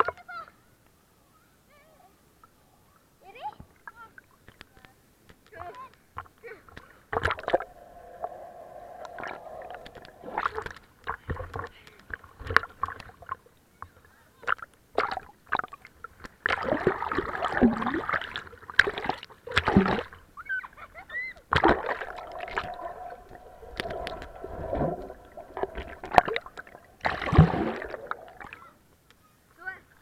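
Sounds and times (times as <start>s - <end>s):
pool water splashing and gurgling: 6.9s - 11.3s, 16.4s - 20.2s, 21.4s - 28.8s.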